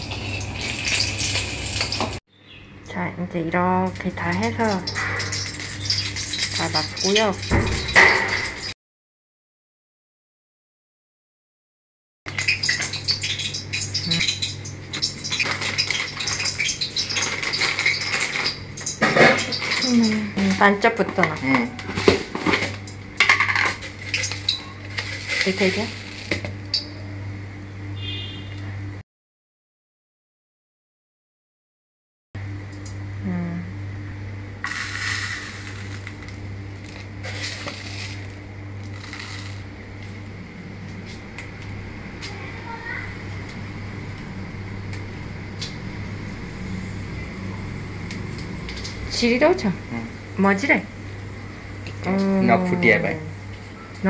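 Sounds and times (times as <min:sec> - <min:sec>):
oil sizzling and popping in a wok: 0:00.0 - 0:02.2, 0:03.8 - 0:08.8, 0:12.3 - 0:21.6, 0:22.3 - 0:26.9, 0:34.6 - 0:39.7
low steady hum: 0:00.0 - 0:08.7, 0:12.3 - 0:29.0, 0:32.4 - 0:54.0
seeds rattling against plastic: 0:24.0 - 0:26.4, 0:34.6 - 0:39.7
person speaking: 0:52.0 - 0:53.3.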